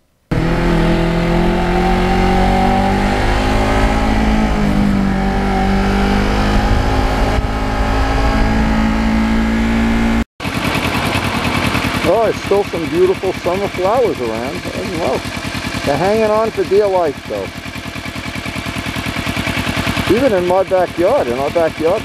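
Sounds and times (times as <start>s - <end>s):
wind and road noise: 0.3s - 14.0s
motorcycle engine cruising: 0.3s - 22.0s.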